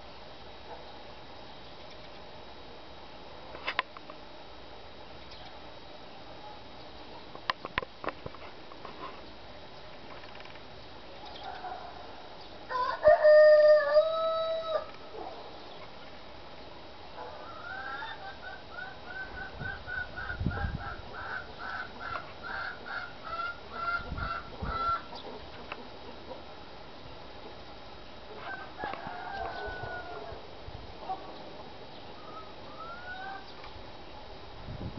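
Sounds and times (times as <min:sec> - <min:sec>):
rooster crowing: 0:12.7 - 0:14.9, 0:28.4 - 0:30.4.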